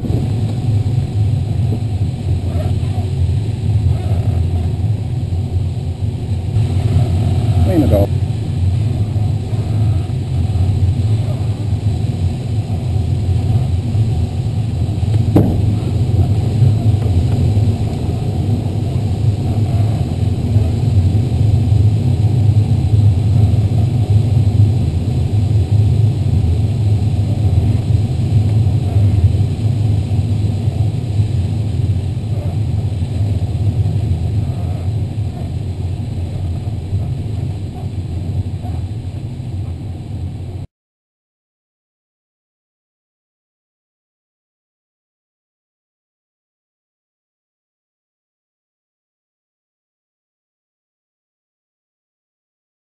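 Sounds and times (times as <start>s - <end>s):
rushing airflow in glider cockpit: 0.0s - 40.7s.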